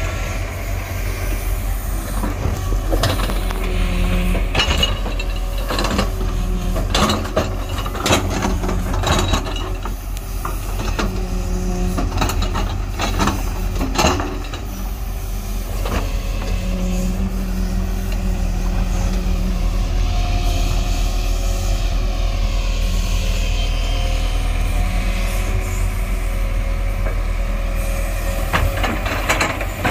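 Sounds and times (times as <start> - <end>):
excavator diesel engine running: 0.0 - 29.9
hydraulics whine: 0.0 - 29.9
bucket scraping and clanking: 2.1 - 14.7.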